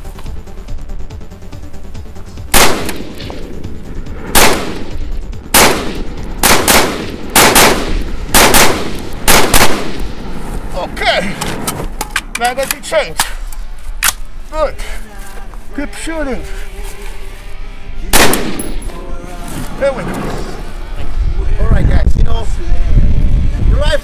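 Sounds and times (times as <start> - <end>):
rifle shots: 2.5 - 3.5, 4.3 - 10.2, 18.1 - 18.9.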